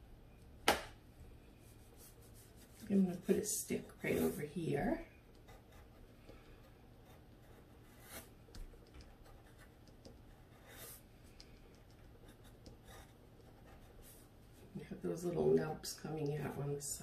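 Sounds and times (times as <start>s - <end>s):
pencil scratching on paper: 1.9s - 11.0s, 11.6s - 14.3s.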